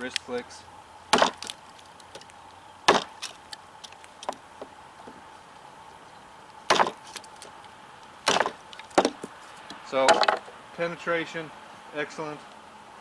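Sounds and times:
wood chips splintering: 0.0 - 5.3, 6.5 - 10.5
knife chopping wooden board: 2.9 - 3.2, 6.7 - 7.0, 8.3 - 9.3.

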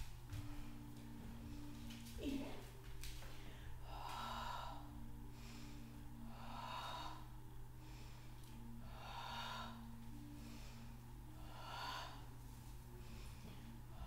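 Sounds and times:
woman breathing: 3.0 - 14.0.

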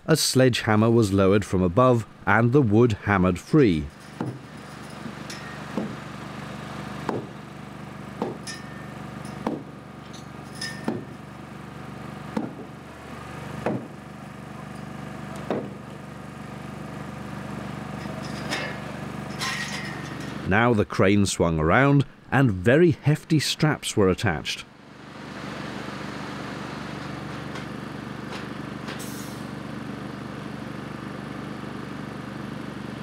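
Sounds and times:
steady machine drone: 1.2 - 33.0
sledgehammer blows on wood: 7.0 - 7.4, 9.4 - 9.8, 13.6 - 14.0.

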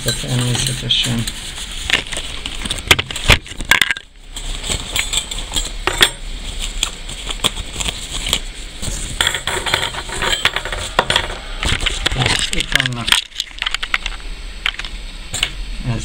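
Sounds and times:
small metal parts clinking: 4.8 - 6.2, 9.2 - 11.4.

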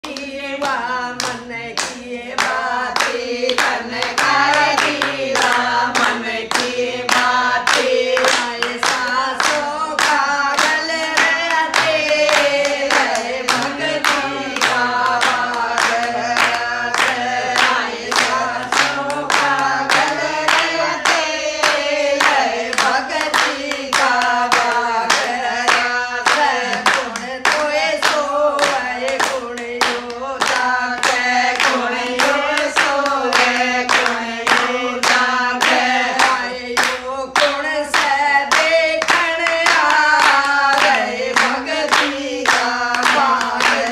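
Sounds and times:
hands clapping: 0.0 - 43.9
women singing devotional song: 0.0 - 43.9.

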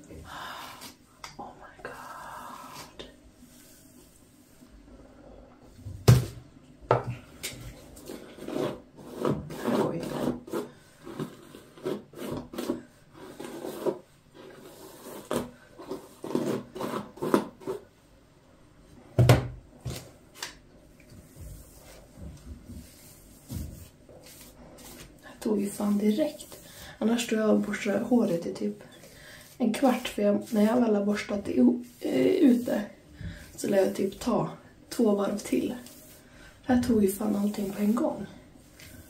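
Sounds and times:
hairbrush rasping through wet hair: 22.8 - 39.0.

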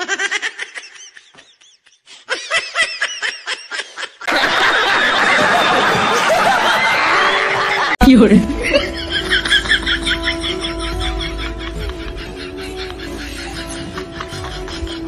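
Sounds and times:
audience laughing: 0.0 - 15.0
audience clapping: 4.3 - 8.0
man snickering: 8.6 - 15.0.

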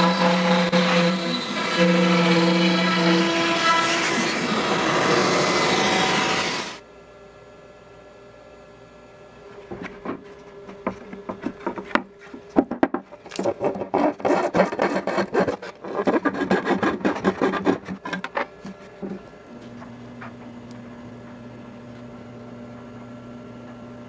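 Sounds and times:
hand tool scraping wood: 9.7 - 19.3.

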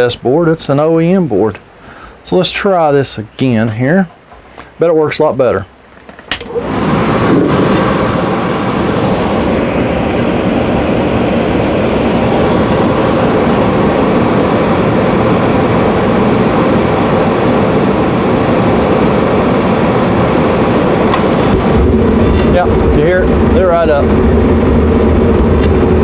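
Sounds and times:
furnace blower and burner rushing: 6.3 - 26.0.

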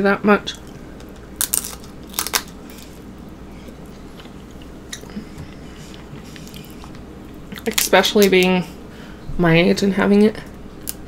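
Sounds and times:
crunchy bites into food: 1.1 - 3.0
quiet chewing: 2.6 - 7.7.

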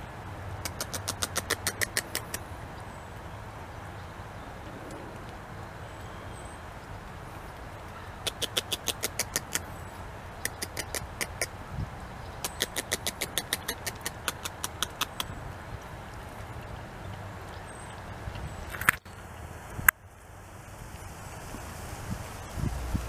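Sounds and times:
beaver chewing bark: 0.6 - 2.7, 6.8 - 9.8, 10.4 - 11.6, 12.3 - 16.8.

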